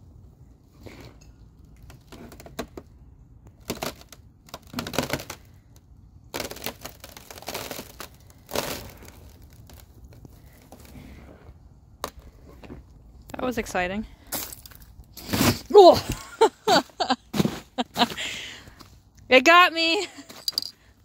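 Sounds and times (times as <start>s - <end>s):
ice crackling and breaking: 6.3s - 10.9s.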